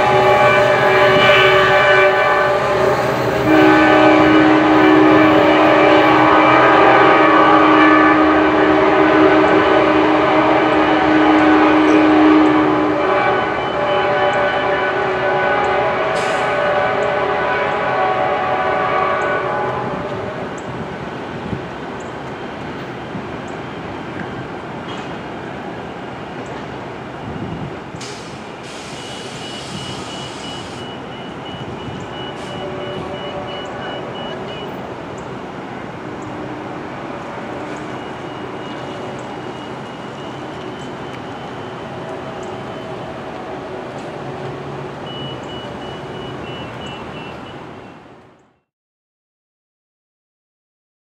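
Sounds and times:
locomotive air horn chord: 0.0 - 20.6, 28.0 - 34.8, 36.1 - 47.6
train rumble and rail noise: 0.0 - 48.6.

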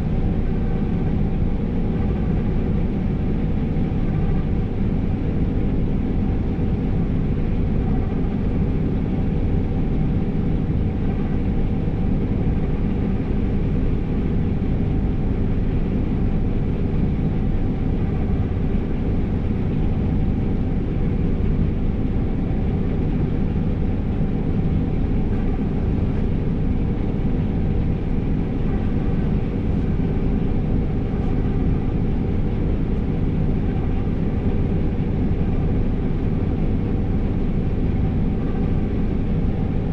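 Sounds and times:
combine harvester engine drone: 0.0 - 39.9
faint humming tones: 0.0 - 39.9.

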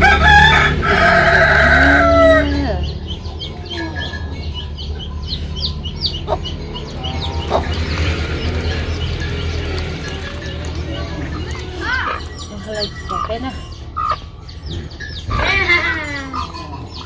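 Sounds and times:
rooster crowing: 0.0 - 2.8
poultry peeping chirps: 1.6 - 17.0.

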